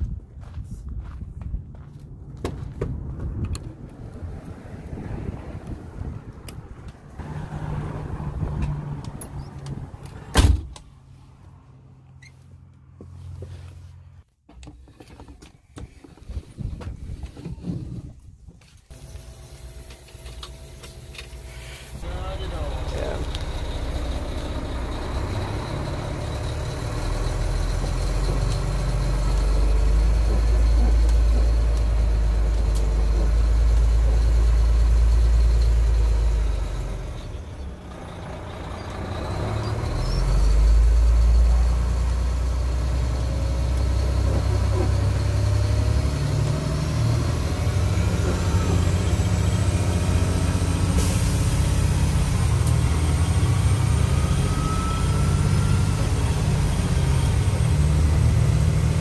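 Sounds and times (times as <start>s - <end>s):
truck diesel engine running: 21.4s - 59.0s.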